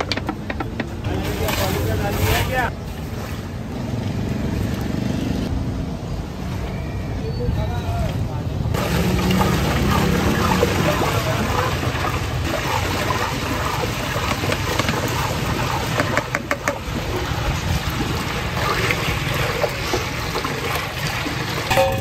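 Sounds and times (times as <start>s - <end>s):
ice and liquid sloshing in pot: 8.8s - 22.0s.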